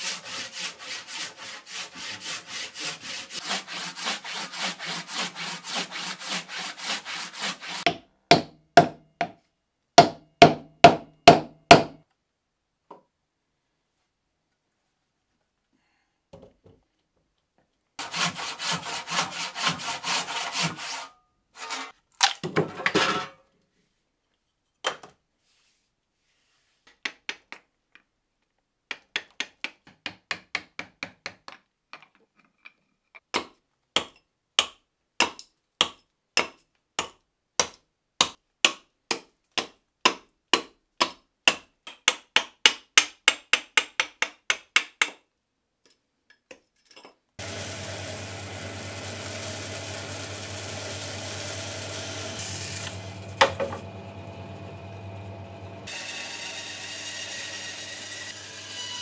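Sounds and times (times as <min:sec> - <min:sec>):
scraping on bark of log: 0:00.0 - 0:07.8
steel tools striking wood: 0:53.4 - 0:53.8.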